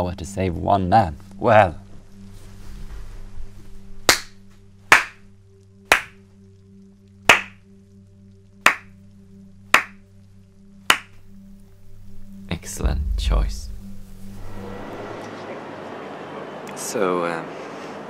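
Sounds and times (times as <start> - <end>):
person clapping slowly: 4.1 - 5.2, 5.9 - 6.2, 7.3 - 7.6, 8.6 - 8.9, 9.8 - 10.0, 10.9 - 11.2
steady low hum: 9.2 - 16.0.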